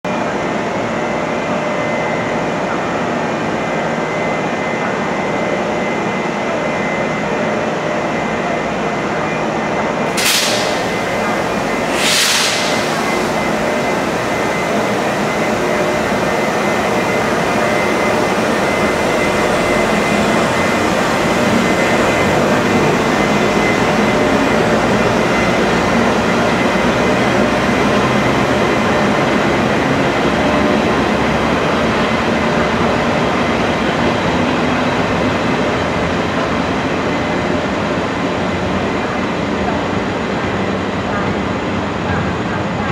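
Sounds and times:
freight train rumbling: 0.0 - 42.9
short hisses: 10.1 - 14.7.

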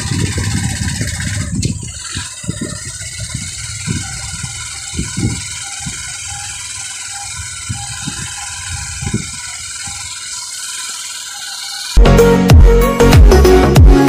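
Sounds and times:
wind thudding on microphone: 0.0 - 10.2
motorcycle engine running: 0.0 - 14.0
loud electronic music: 11.9 - 14.0.

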